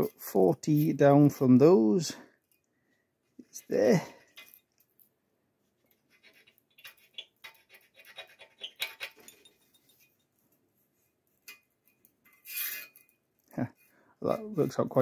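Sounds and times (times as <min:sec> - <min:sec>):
scriber scratching steel plate: 0:05.9 - 0:10.2, 0:11.3 - 0:13.2
steel rule clinking on metal: 0:06.2 - 0:10.2.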